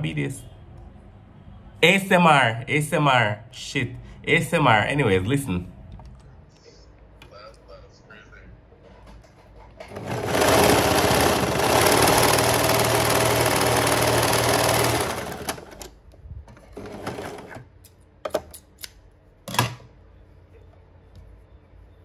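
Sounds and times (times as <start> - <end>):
serger stitching fabric: 9.8 - 15.9.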